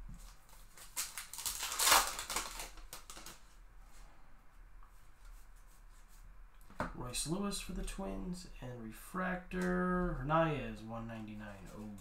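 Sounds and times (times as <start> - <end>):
cards rustling and clicking: 0.2 - 3.6
wrapper tearing open: 0.5 - 3.4.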